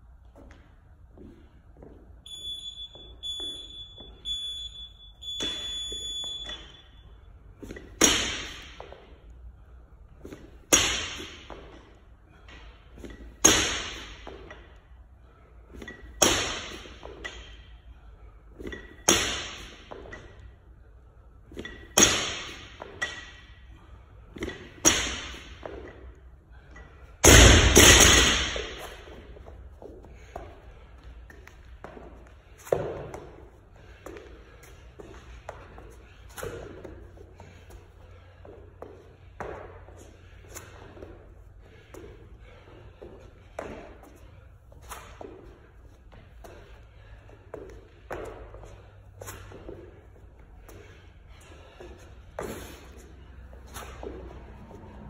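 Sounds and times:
timer beeps: 2.3 - 7.0.

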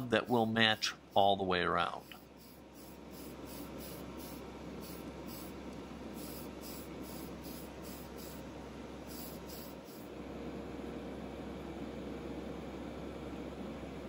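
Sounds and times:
aerosol can spraying: 0.0 - 1.3, 2.0 - 10.1.

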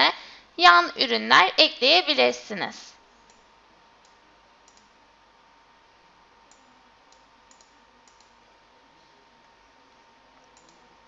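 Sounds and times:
low steady hiss: 0.0 - 11.0
computer mouse clicks: 4.0 - 4.9, 6.5 - 8.4, 10.4 - 10.9.

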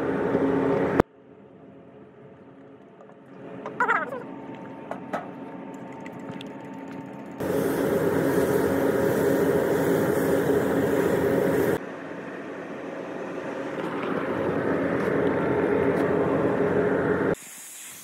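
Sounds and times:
ventilation hum: 0.0 - 17.4
paint spray gun hissing: 7.4 - 11.8, 17.4 - 18.0.

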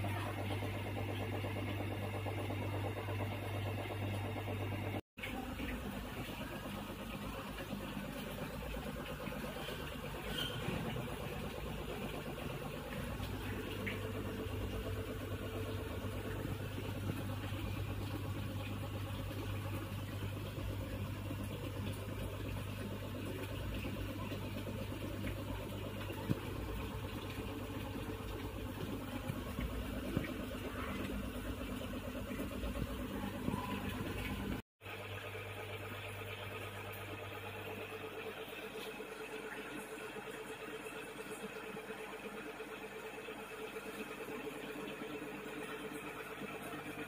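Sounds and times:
low mechanical hum: 0.0 - 47.0.

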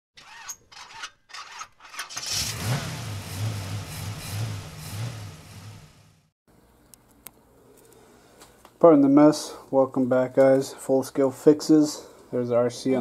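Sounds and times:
engine starting and idling: 2.0 - 6.3.

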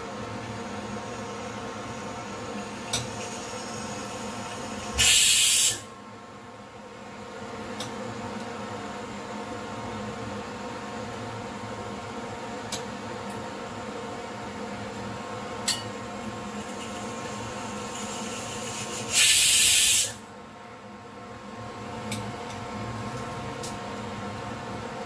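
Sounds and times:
cooktop humming: 0.0 - 5.9, 12.6 - 20.2
pressure cooker steam hiss: 1.1 - 5.9, 16.4 - 20.3.

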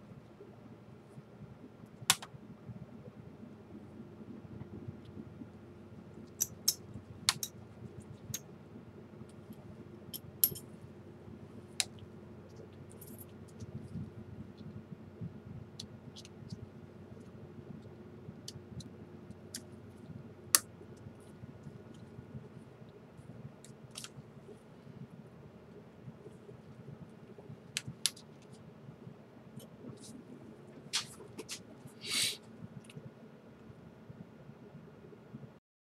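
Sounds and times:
faint steady hum: 0.0 - 35.6.

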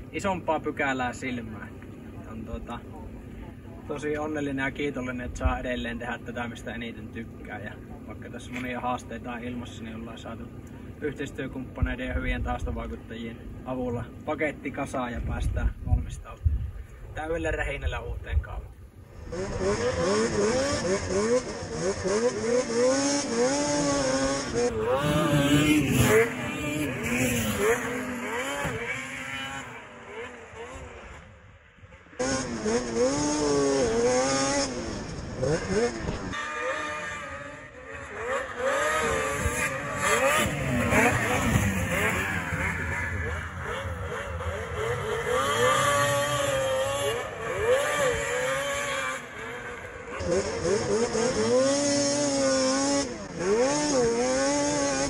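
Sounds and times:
snowmobile engines revving: 17.2 - 55.0.

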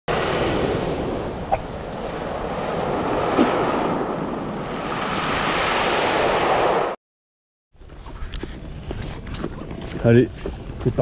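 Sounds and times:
surf on pebble beach: 0.1 - 7.0.

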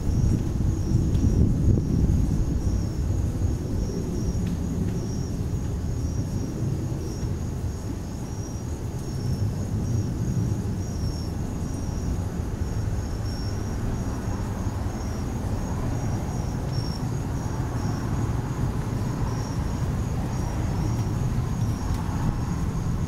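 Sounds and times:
crickets chirping: 0.0 - 23.0
wind rumble on microphone: 0.0 - 23.0.

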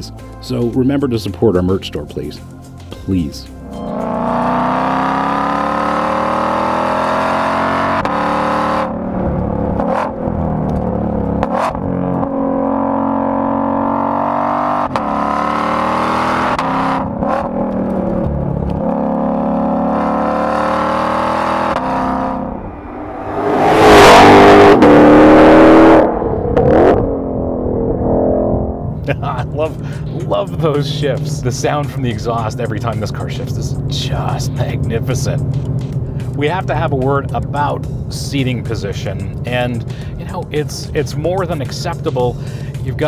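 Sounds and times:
car engine and exhaust accelerating: 3.5 - 43.0
car passing by: 22.0 - 27.1.

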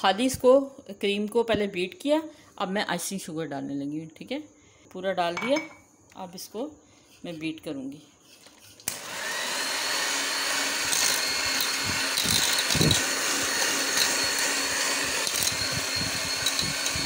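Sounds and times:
electric hand mixer running: 8.9 - 17.0.

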